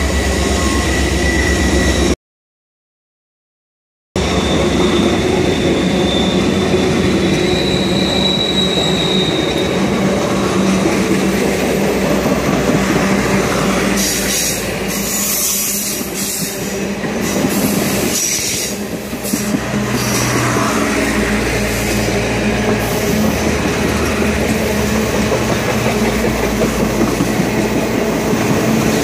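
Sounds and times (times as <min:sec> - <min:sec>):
high wheel squeal: 0:00.0 - 0:02.2, 0:04.2 - 0:10.8, 0:13.4 - 0:26.4
train wheels rumbling on rail: 0:04.2 - 0:29.0.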